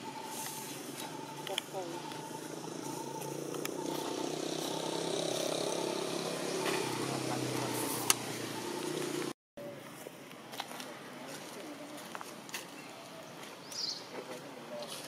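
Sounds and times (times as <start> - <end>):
vehicle engine running: 0.0 - 9.4.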